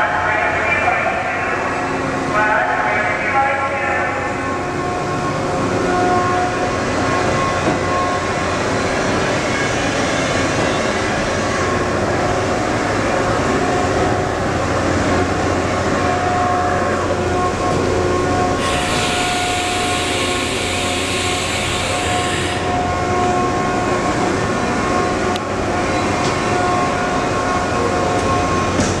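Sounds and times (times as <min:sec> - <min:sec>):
machinery drone and whine: 0:00.0 - 0:29.0
loud hiss: 0:18.6 - 0:22.5.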